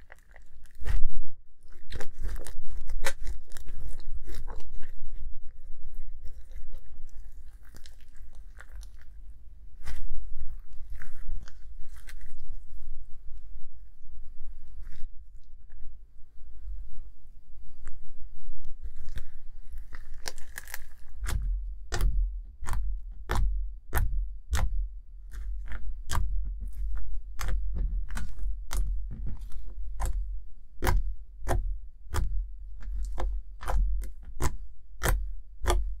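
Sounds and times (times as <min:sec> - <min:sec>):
slime crackling: 0:00.0 - 0:12.9, 0:18.7 - 0:36.0
wet clicks and pops of slime: 0:20.2 - 0:36.0.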